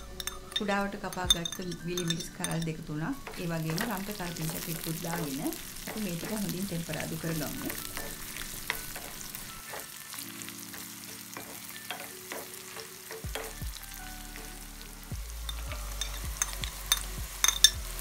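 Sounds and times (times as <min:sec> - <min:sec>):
food sizzling in hot oil: 0:00.0 - 0:18.0
wooden spoon scraping a wok: 0:03.2 - 0:18.0.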